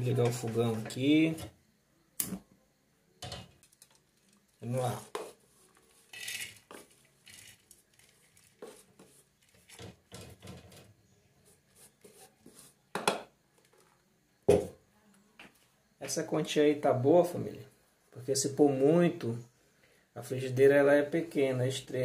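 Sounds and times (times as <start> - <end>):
seeds rustling: 3.6 - 9.8
metal scraping and clinking: 5.9 - 8.6.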